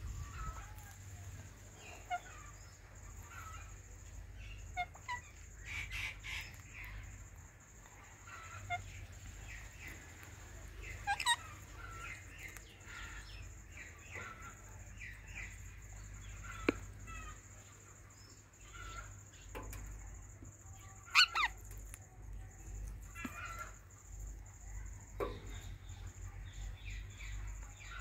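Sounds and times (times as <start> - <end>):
parakeets chirping: 1.7 - 28.0
parakeet squawk: 10.9 - 13.2, 20.8 - 21.6.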